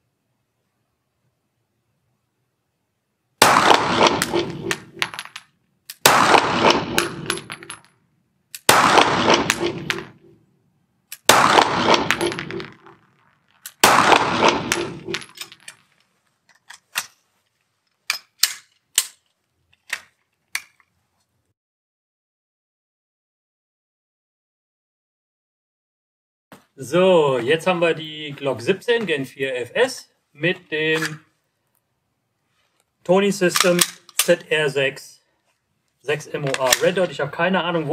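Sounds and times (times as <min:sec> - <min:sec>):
loud pistol shots echoing: 0:03.4 - 0:05.3, 0:06.0 - 0:07.8, 0:08.6 - 0:10.2, 0:11.3 - 0:12.9, 0:13.8 - 0:15.4
metallic clicks of pistol handling: 0:11.1 - 0:11.3, 0:14.8 - 0:17.2, 0:17.9 - 0:20.9, 0:33.5 - 0:34.4.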